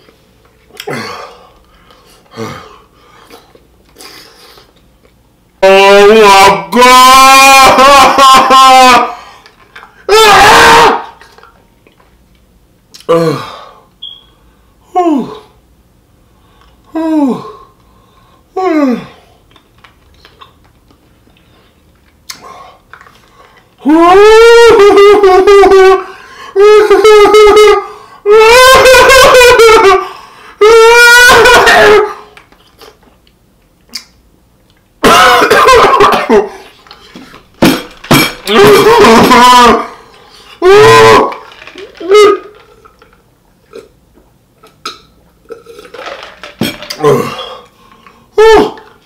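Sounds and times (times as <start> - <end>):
man yelping: 5.6 - 9.2, 10.1 - 11.2, 23.8 - 32.3, 38.4 - 40.0, 40.6 - 41.4, 48.4 - 48.9
man wailing in pain: 5.8 - 9.2, 10.1 - 11.1, 23.8 - 32.2, 35.0 - 36.3, 38.4 - 40.0, 40.6 - 41.4.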